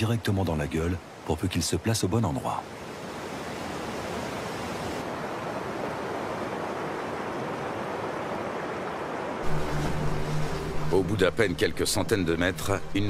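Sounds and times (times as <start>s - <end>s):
whitewater rapids rushing: 4.0s - 13.0s.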